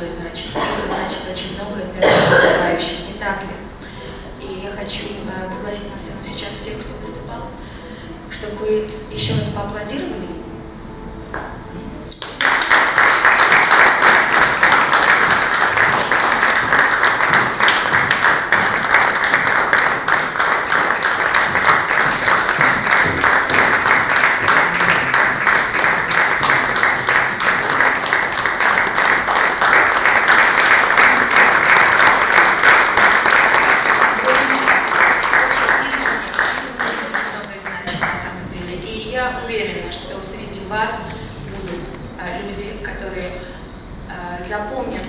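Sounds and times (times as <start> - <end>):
audience applauding: 12.1 - 38.4.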